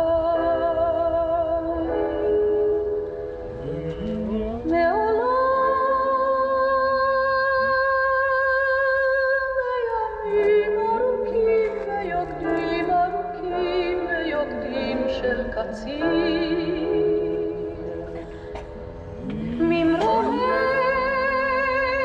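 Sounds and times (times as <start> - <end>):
woman singing: 0.0 - 2.9, 3.9 - 18.3, 19.2 - 22.0.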